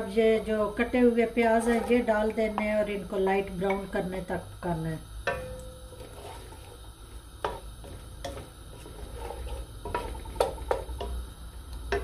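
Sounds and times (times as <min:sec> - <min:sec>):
onions sizzling in oil: 0:00.0 - 0:12.0
wooden spoon scraping metal pot: 0:01.4 - 0:02.8, 0:07.4 - 0:11.1.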